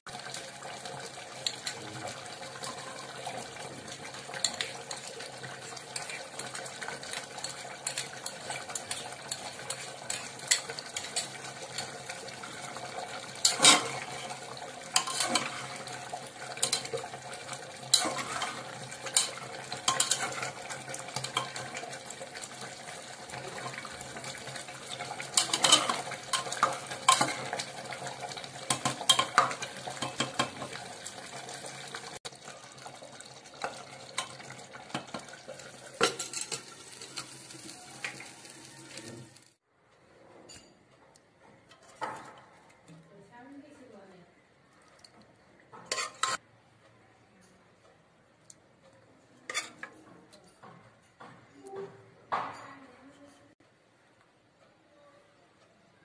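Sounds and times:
metal spatula scraping a pot: 2.4 - 31.6, 33.6 - 39.1, 45.8 - 46.4, 49.4 - 50.0.

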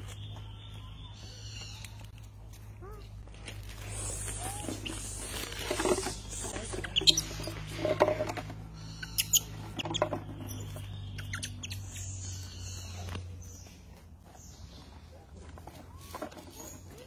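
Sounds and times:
monkeys squeaking and chirping: 3.8 - 13.7.

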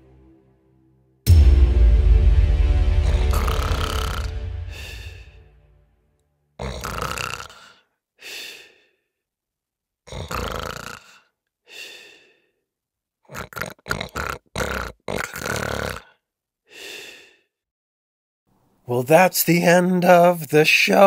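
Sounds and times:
heavy breathing with snore: 6.6 - 8.9, 10.1 - 12.5.

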